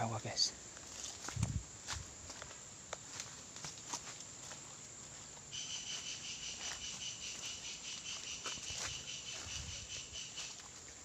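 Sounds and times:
insect high trill: 5.5 - 10.7.

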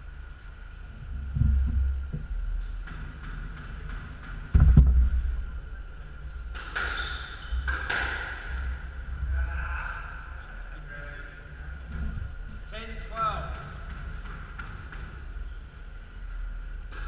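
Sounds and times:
loud thud: 4.5 - 5.4
squash ball hits echoing: 6.5 - 8.8.

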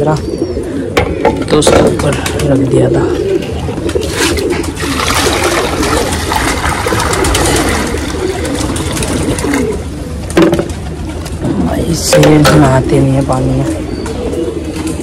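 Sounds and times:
pigeons cooing: 0.0 - 15.0
water splashing into a bowl: 4.8 - 9.6.

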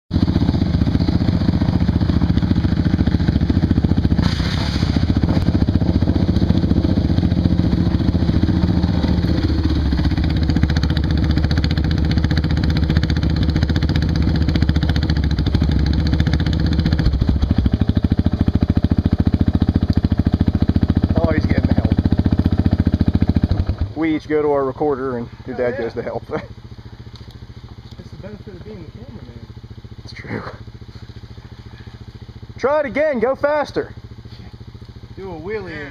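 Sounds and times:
off-road vehicle engine running: 0.1 - 35.9.

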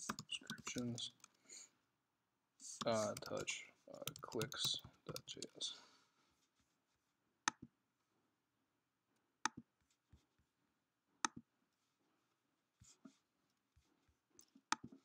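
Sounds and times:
computer mouse clicks: 0.0 - 1.4, 2.7 - 5.6
keyboard taps: 2.8 - 3.4, 4.0 - 5.5.

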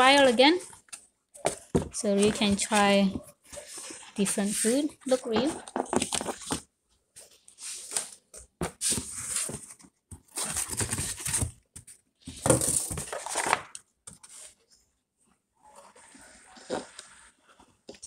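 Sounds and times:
cardboard and paper rustling: 0.8 - 14.6.

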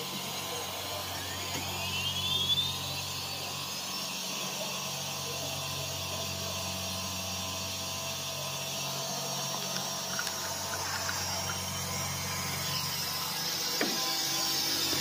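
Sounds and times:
router spindle hum and whine: 0.0 - 15.0.

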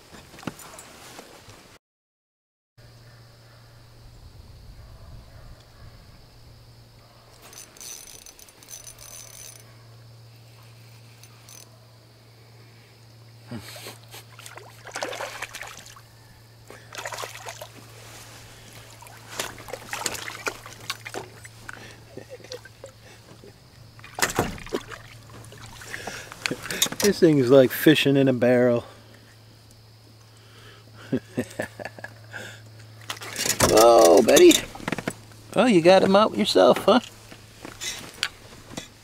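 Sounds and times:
steady low hum: 2.8 - 39.0
water trickling and splashing: 14.2 - 16.1, 16.7 - 27.3.

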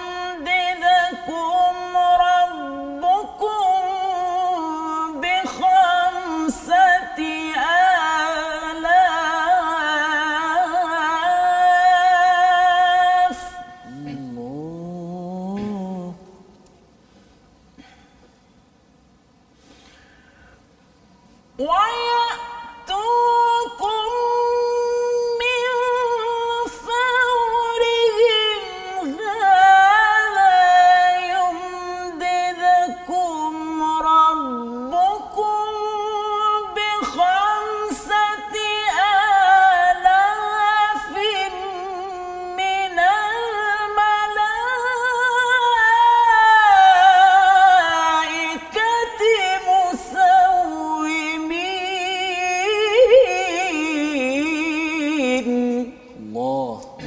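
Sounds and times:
man chanting melodically: 11.5 - 16.5.

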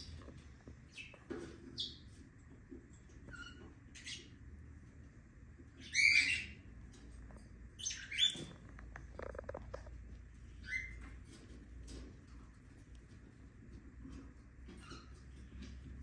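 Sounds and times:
lovebird chirping: 5.8 - 6.6, 7.8 - 8.6, 10.6 - 11.1.

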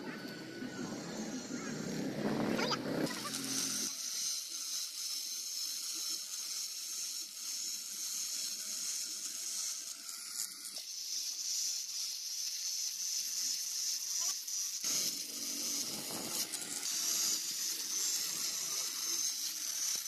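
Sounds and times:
faint steady whine: 0.0 - 3.1
angle grinder cutting wire mesh: 0.0 - 20.0.

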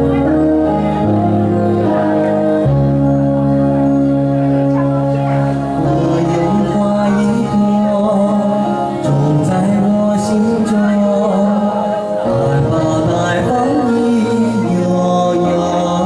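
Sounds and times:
backing track with held chords: 0.0 - 16.0
man singing karaoke: 4.2 - 16.0.

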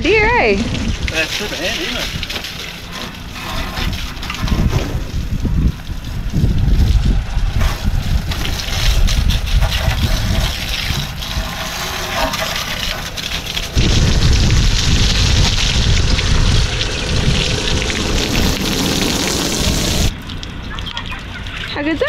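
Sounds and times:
wind buffeting microphone: 0.0 - 12.2, 13.1 - 20.1
hose water gushing and splashing: 0.0 - 22.0.

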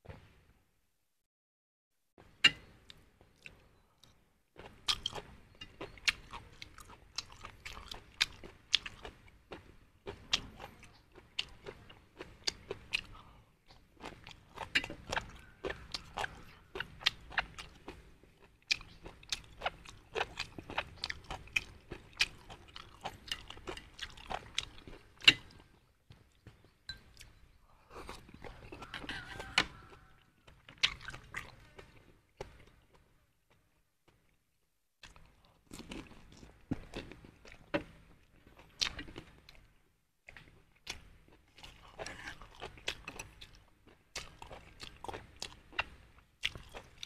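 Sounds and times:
man chewing wetly: 2.6 - 33.1, 35.0 - 47.0.

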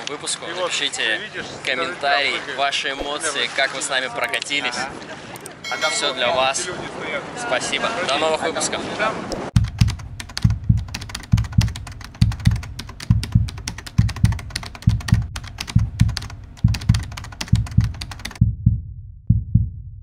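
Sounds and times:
rapid dense clicking: 9.6 - 18.4
low thumps: 9.6 - 20.0.

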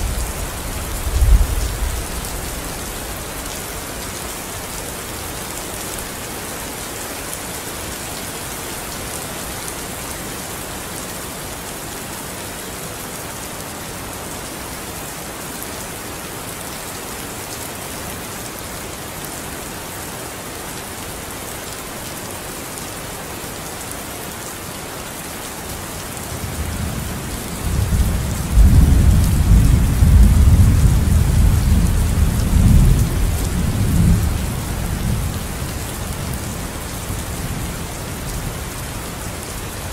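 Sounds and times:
thunder rumbling: 0.0 - 3.0
rain hissing: 0.0 - 9.6.

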